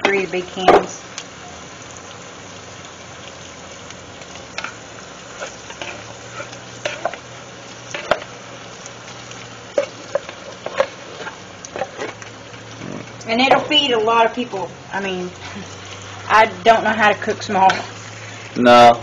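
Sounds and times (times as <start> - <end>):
hot pan sizzling: 0.0 - 19.0
spoon scraping metal pan: 17.4 - 18.0.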